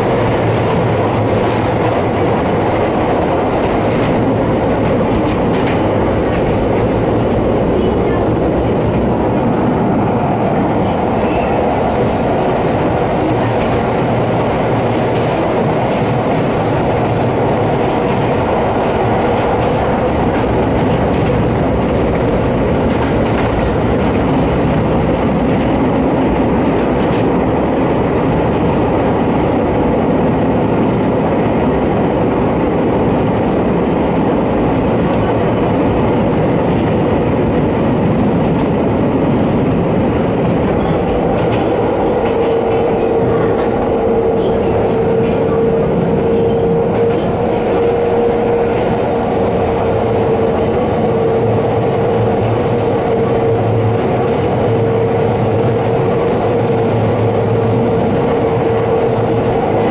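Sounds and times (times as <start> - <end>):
electric train running: 38.2 - 59.9.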